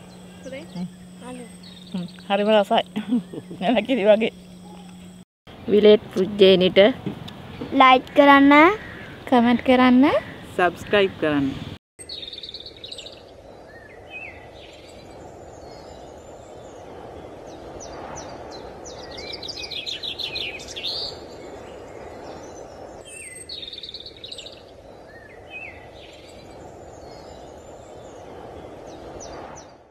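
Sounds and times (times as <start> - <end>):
birds chirping and trilling: 0.0 - 5.9, 7.4 - 29.8
steady rushing noise: 14.0 - 23.1.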